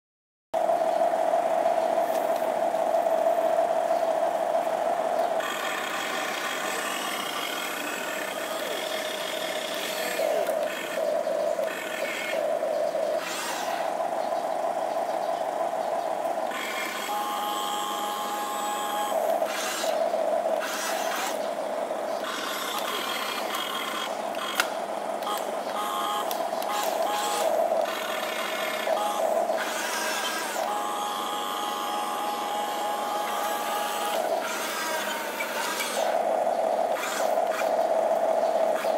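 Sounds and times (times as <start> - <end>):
toy excavator motors whining: 1.6 - 38.9
clicks: 22.4 - 28.3.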